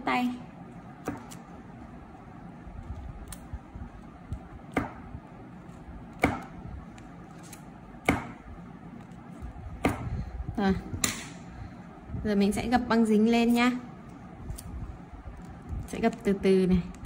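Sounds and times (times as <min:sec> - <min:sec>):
scissors snipping tape: 0:03.2 - 0:03.5.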